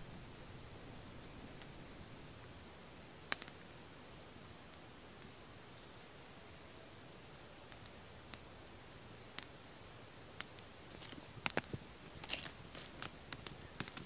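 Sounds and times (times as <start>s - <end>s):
campfire crackling: 0.0s - 14.0s
sharp pops from fire: 3.2s - 3.7s, 7.7s - 8.5s, 9.3s - 9.6s, 10.4s - 14.0s.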